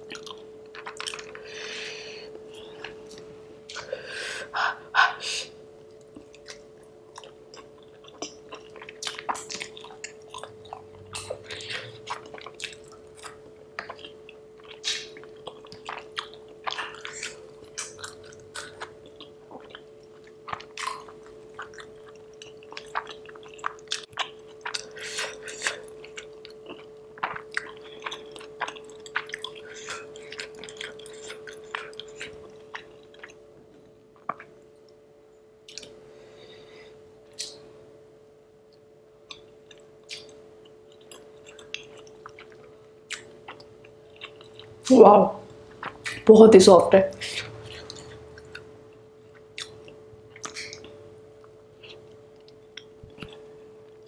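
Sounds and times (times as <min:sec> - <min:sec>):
faint hum: 0:00.0 - 0:54.0
chewing and wet mouth smacks: 0:00.1 - 0:01.4, 0:06.0 - 0:33.4, 0:34.2 - 0:34.6, 0:35.7 - 0:36.0, 0:39.2 - 0:44.8, 0:45.7 - 0:46.3, 0:47.3 - 0:54.0.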